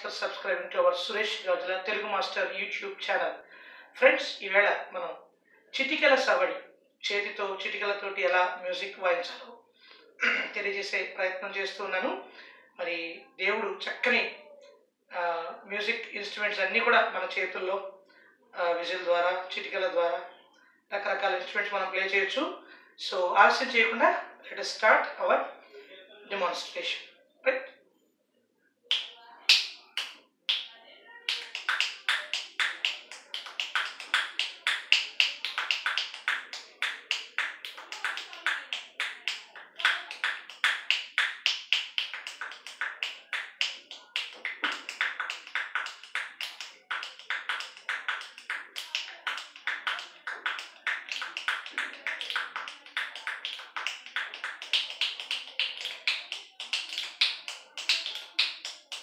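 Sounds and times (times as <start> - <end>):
rhythmic finger snapping: 28.9 - 59.0.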